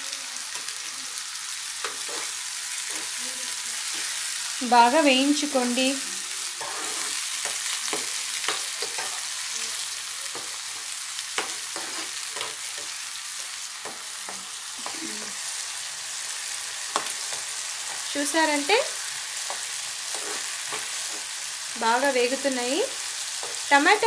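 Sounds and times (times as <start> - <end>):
onions and tomatoes sizzling in oil: 0.0 - 24.0
steel spoon scraping a pan: 1.8 - 3.2, 6.4 - 9.4, 10.4 - 13.0, 16.8 - 21.4.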